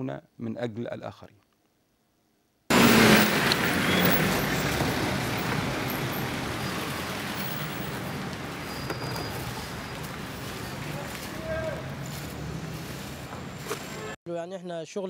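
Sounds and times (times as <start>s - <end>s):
cars passing close by: 2.7s - 14.2s.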